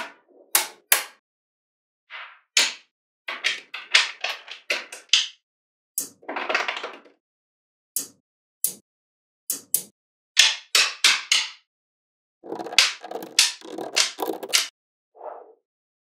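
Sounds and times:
magnetic balls clicking together: 12.4 - 14.7
rattle of balls: 12.4 - 14.7.

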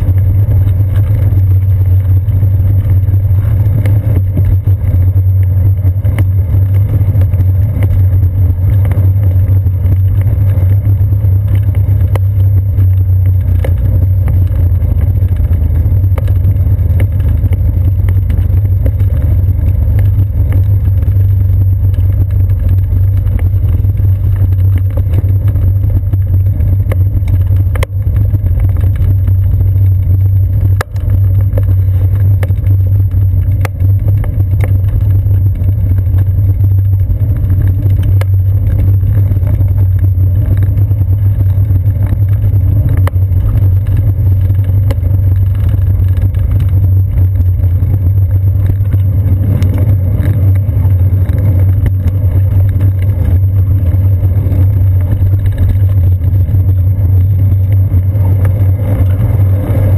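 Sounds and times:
bicycle rumbling over wooden boards: 0.0 - 59.9.

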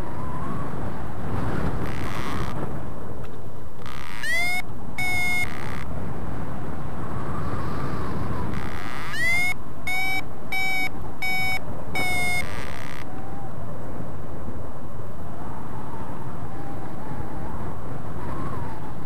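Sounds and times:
steady wind noise: 0.0 - 19.0
variometer beeping: 3.8 - 5.9, 8.5 - 13.1.

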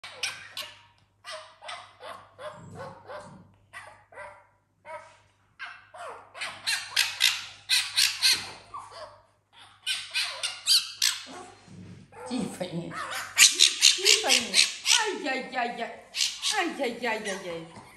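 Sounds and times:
fox high-pitched squawking chatter: 0.0 - 4.0, 5.6 - 11.5, 12.9 - 15.5, 16.1 - 17.9.

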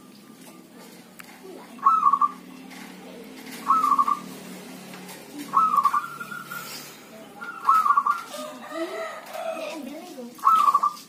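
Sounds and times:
dove cooing: 1.6 - 9.7, 10.4 - 11.0.

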